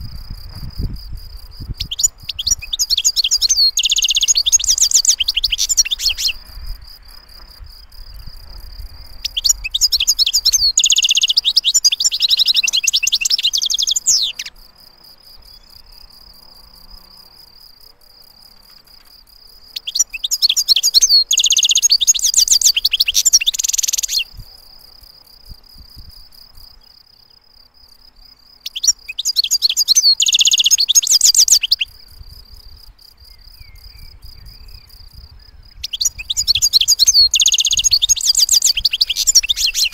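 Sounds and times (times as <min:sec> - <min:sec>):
goldfinch twittering song: 0:01.6 - 0:06.6, 0:09.0 - 0:14.6, 0:19.6 - 0:24.3, 0:28.6 - 0:32.1, 0:33.2 - 0:39.9.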